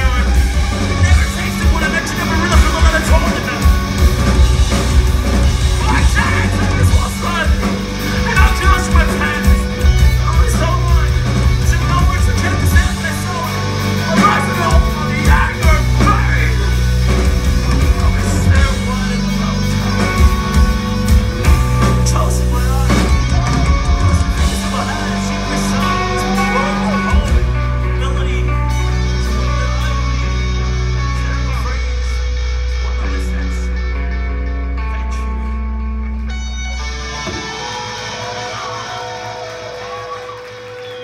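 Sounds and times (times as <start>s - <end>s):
metal band playing live: 0.0s - 41.0s
singer's vocals: 22.0s - 32.1s.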